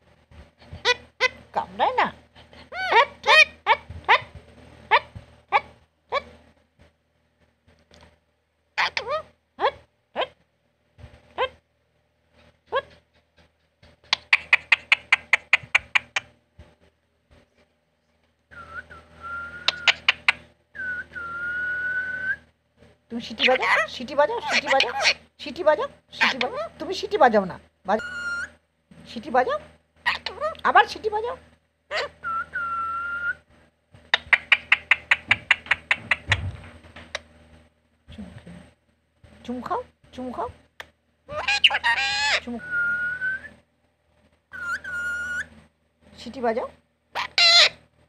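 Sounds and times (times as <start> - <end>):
parakeet chirping: 2.7 - 4.3, 14.1 - 16.3, 19.6 - 20.4, 23.3 - 25.2, 26.2 - 26.7, 28.0 - 28.5, 30.0 - 30.8, 31.9 - 33.3, 34.1 - 37.2, 41.3 - 43.0, 44.5 - 45.5, 47.2 - 47.8
parakeet whistling: 18.5 - 22.4, 28.0 - 28.5, 31.9 - 33.4, 34.2 - 36.4, 41.3 - 43.5, 44.5 - 45.5.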